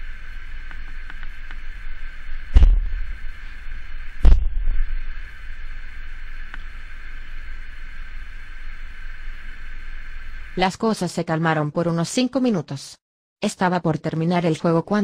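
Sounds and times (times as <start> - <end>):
steady hiss and hum: 0.0 - 12.4
loud thuds: 2.5 - 3.4, 4.2 - 5.0
faint click: 6.4 - 6.7.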